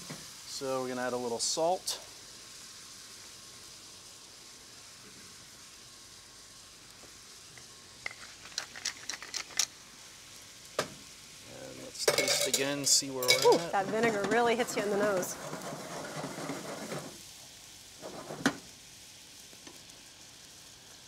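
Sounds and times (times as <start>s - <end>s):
pan simmering with faint sizzle: 0.0s - 21.0s
seasoning mill grinding: 7.6s - 9.8s, 12.1s - 17.2s.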